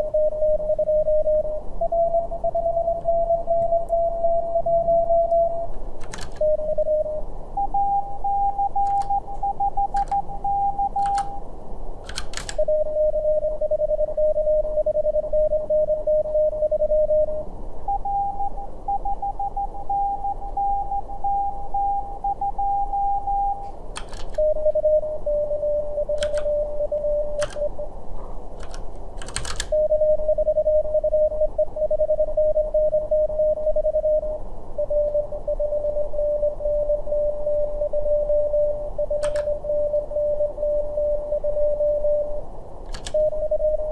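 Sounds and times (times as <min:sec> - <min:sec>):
morse code tones: 0:00.0 - 0:11.5, 0:12.1 - 0:27.9, 0:28.6 - 0:43.9
computer key clicks: 0:06.0 - 0:06.4, 0:10.0 - 0:10.2, 0:11.0 - 0:11.4, 0:12.0 - 0:12.6, 0:24.0 - 0:24.4, 0:26.2 - 0:26.5, 0:27.4 - 0:27.7, 0:28.6 - 0:29.8, 0:39.2 - 0:39.6, 0:42.9 - 0:43.2.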